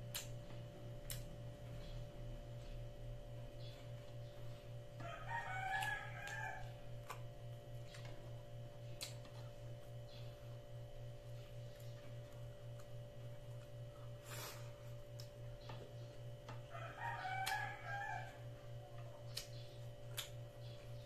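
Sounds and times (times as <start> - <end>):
eating clicks and smacks: 0.0 - 2.0, 5.7 - 10.3, 19.0 - 21.0
pulsing low hum: 0.0 - 21.0
rooster crowing: 5.0 - 6.8, 16.6 - 18.6.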